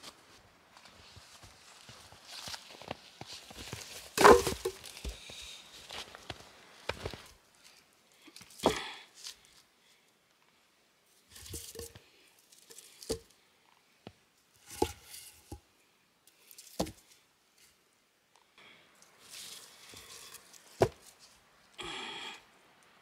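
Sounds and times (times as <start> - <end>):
footsteps in snow: 0.0 - 7.4
logs knocking on stack: 4.2 - 4.8, 16.8 - 17.0.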